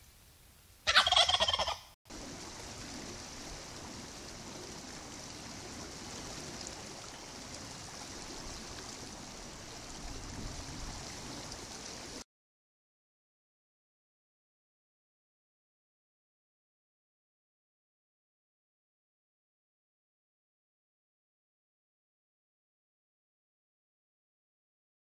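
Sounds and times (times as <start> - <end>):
wild turkey gobbling: 0.8 - 1.9
steady hiss: 2.1 - 12.2.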